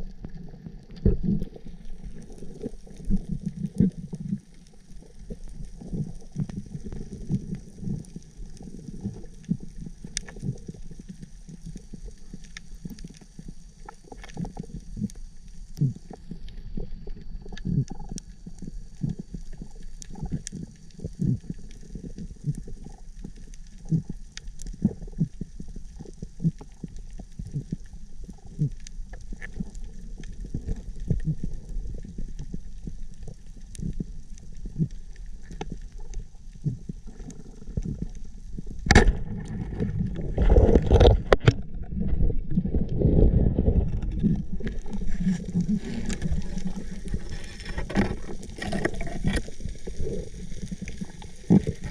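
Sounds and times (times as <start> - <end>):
low underwater rumble: 0.0 - 51.9
rushing bubbling water: 0.0 - 51.9
sharp crack: 38.8 - 39.9.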